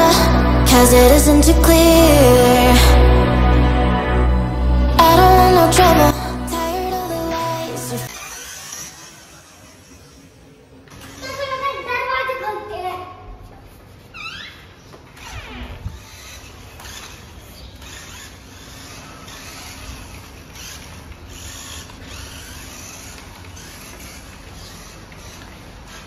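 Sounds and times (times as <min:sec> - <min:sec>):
toy truck electric motor whirring: 0:08.0 - 0:11.8, 0:15.9 - 0:26.0.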